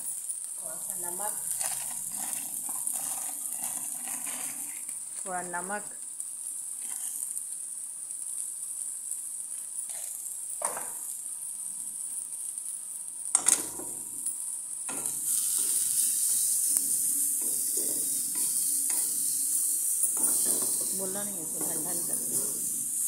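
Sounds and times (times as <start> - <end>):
cabbage sizzling in pan: 0.0 - 23.0
wooden spatula scraping pan: 1.4 - 4.9, 14.9 - 22.9.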